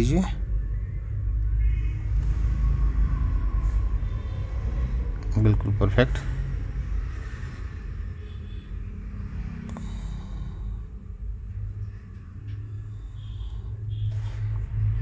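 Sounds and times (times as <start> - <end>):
low background rumble: 0.0 - 15.0.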